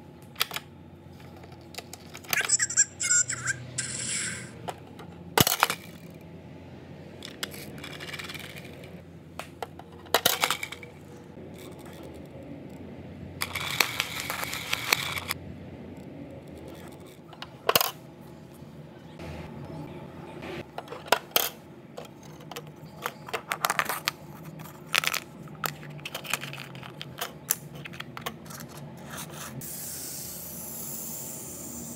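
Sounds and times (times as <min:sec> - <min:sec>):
plastic toys clicking and clacking: 0:01.4 - 0:03.9, 0:07.3 - 0:08.9, 0:09.6 - 0:10.9, 0:13.4 - 0:15.4, 0:20.8 - 0:29.2
toy bus rolling on wooden floor: 0:07.2 - 0:09.0, 0:09.7 - 0:12.3, 0:13.4 - 0:15.4.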